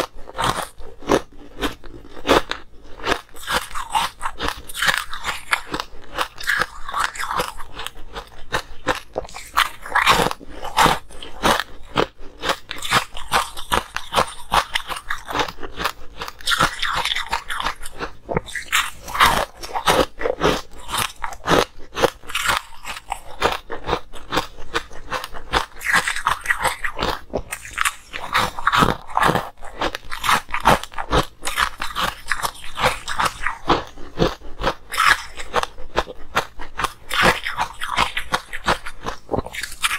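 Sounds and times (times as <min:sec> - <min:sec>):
ice cubes crunching: 0:00.1 - 0:39.9.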